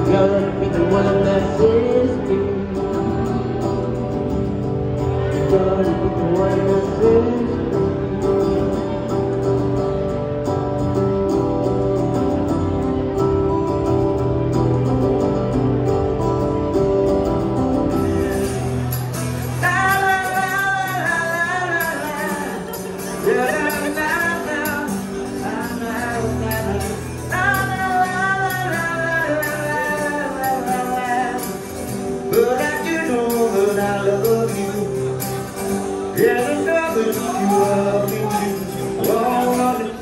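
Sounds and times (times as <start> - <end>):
person singing: 0.0 - 3.3, 5.1 - 8.7, 19.4 - 40.0
acoustic guitar: 0.0 - 40.0.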